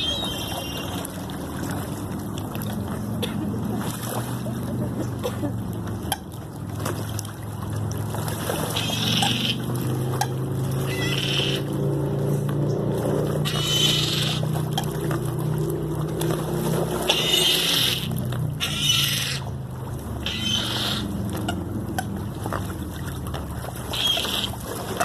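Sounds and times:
high-pitched bird cries: 0.0 - 1.0, 8.8 - 9.7, 10.9 - 11.7, 13.4 - 14.5, 17.1 - 19.5, 20.2 - 21.1, 23.9 - 24.5.

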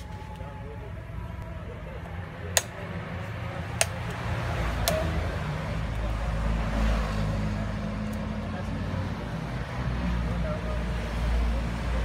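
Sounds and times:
low vehicle engine rumble: 0.0 - 12.0
machete chopping coconut: 4.8 - 5.2.

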